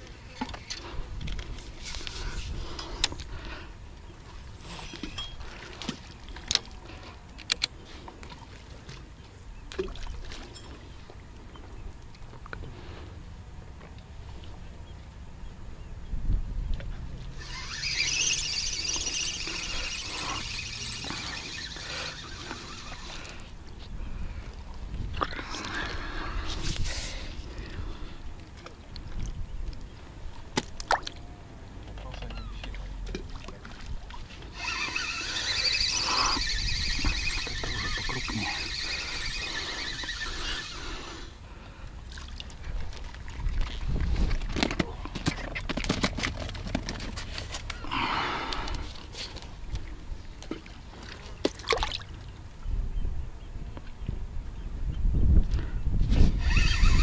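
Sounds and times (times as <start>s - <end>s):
fishing reel whirring squeal: 17.3s - 23.6s, 34.3s - 41.4s, 56.2s - 57.0s.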